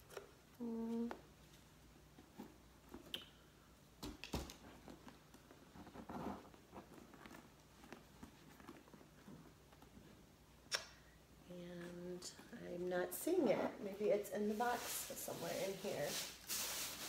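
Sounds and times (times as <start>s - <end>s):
rustling of canvas bag: 4.7s - 10.2s.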